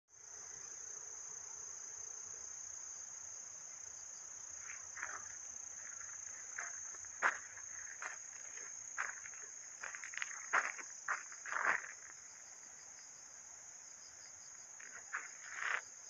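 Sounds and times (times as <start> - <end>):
crickets chirping: 0.1 - 16.0
footsteps: 4.6 - 12.2, 14.8 - 15.9.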